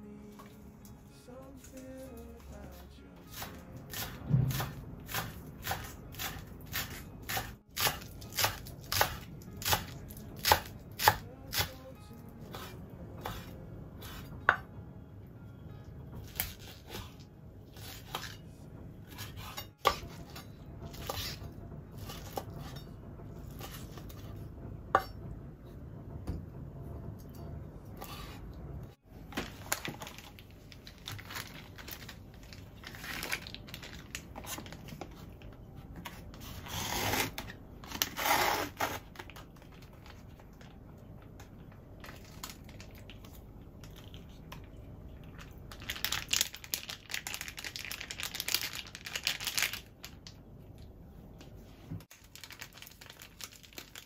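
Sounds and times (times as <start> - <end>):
plastic packets rustling: 29.2 - 35.5, 42.0 - 43.2, 45.4 - 50.4, 52.1 - 54.0.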